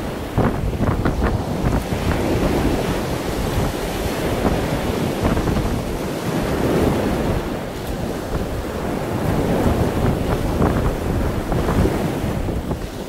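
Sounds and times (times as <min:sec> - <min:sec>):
water rushing along hull: 0:00.0 - 0:13.0
wind buffeting microphone: 0:00.0 - 0:13.0.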